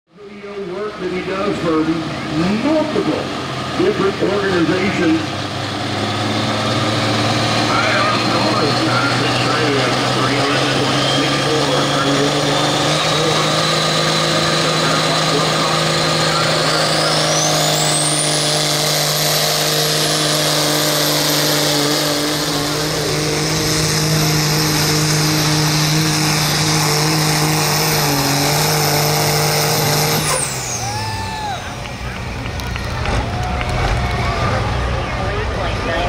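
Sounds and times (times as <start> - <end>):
diesel engine running hard: 0.1 - 36.0
high turbocharger whistle: 7.8 - 34.8.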